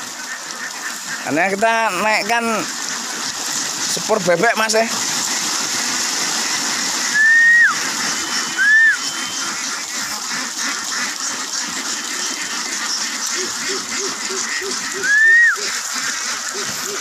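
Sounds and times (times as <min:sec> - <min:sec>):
ducks quacking: 0:00.0 - 0:17.0
ducks splashing in water: 0:00.0 - 0:17.0
short rising and falling whistles: 0:07.2 - 0:07.8, 0:08.4 - 0:09.4.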